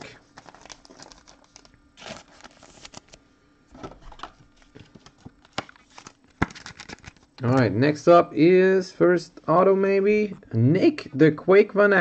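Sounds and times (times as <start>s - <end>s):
trading cards rustling and clicking: 4.0s - 7.3s.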